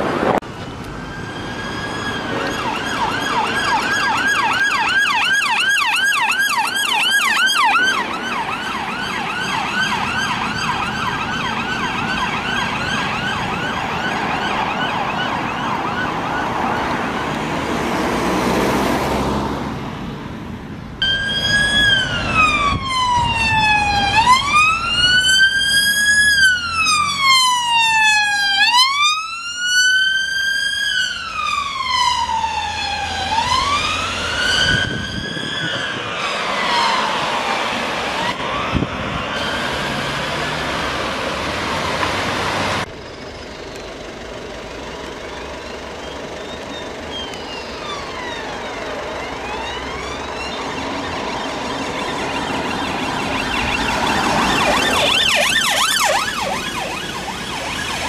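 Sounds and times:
slow wailing siren: 0.0s - 19.4s, 21.0s - 43.0s, 45.2s - 58.0s
fast yelping siren: 1.0s - 17.2s, 21.0s - 37.6s, 46.3s - 58.0s.

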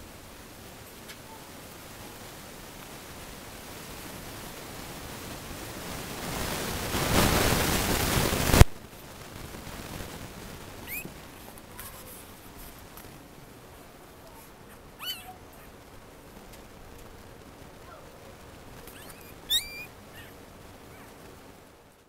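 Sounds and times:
puppy squeak: 10.9s - 11.1s, 15.0s - 15.4s, 18.9s - 20.4s
camera rubbing on fur: 10.9s - 13.2s, 14.2s - 15.8s, 18.7s - 21.3s.

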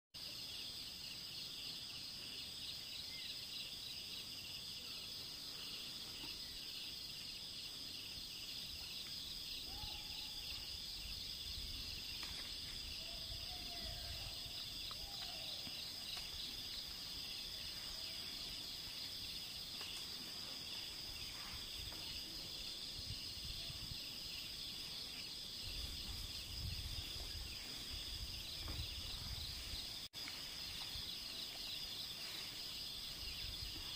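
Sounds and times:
faint bird calls: 9.6s - 10.7s, 12.9s - 16.3s.

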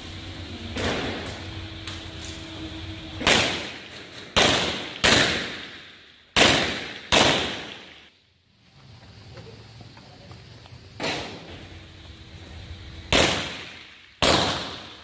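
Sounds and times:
pistol shots echoing: 3.2s - 8.1s, 13.1s - 15.0s.

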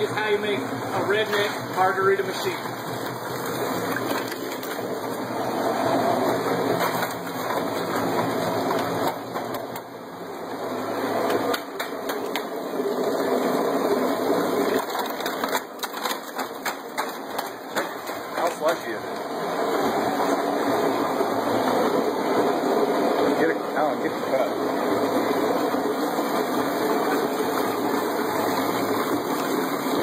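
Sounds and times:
garbage disposal motor churning ice: 0.0s - 30.0s
ice cubes clattering: 2.9s - 5.0s, 14.3s - 18.8s.

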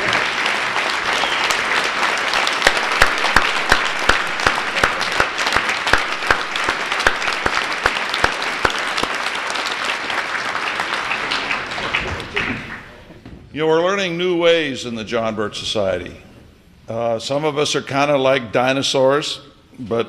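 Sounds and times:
audience applauding: 0.0s - 13.1s.

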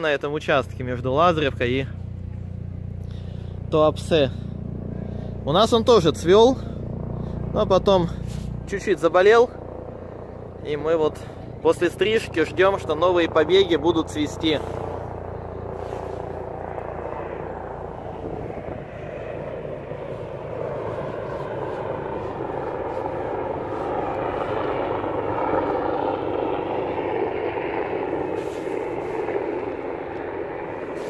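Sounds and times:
aircraft engine passing over: 0.0s - 31.0s.

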